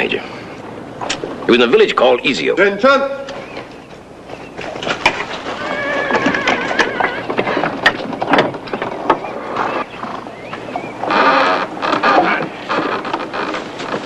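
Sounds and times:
hooves on dirt: 3.2 - 14.0
horse whinnying: 5.3 - 7.7, 11.0 - 12.9.

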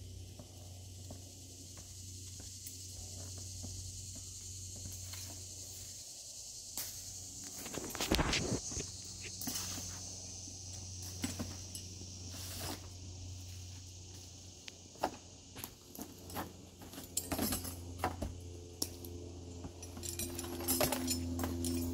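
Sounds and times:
high insect buzz: 0.0 - 21.9
steady low hum: 0.0 - 21.9
harness metal hardware clinking: 16.8 - 18.2, 18.8 - 21.9.

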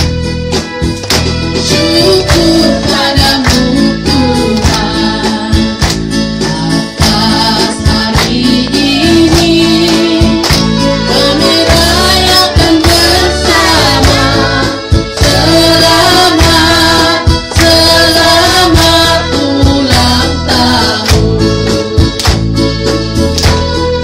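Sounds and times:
hands clapping in time: 0.0 - 24.0
instrumental accompaniment: 0.0 - 24.0
small choir singing: 1.6 - 5.8, 6.6 - 21.4.

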